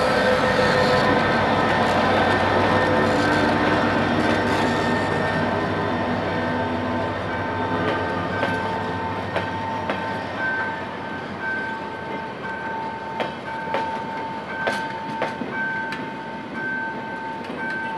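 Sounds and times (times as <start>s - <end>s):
train wheels clicking over rail joints: 0.0s - 6.2s, 7.3s - 10.7s, 11.4s - 16.2s
train rumble: 0.0s - 17.9s.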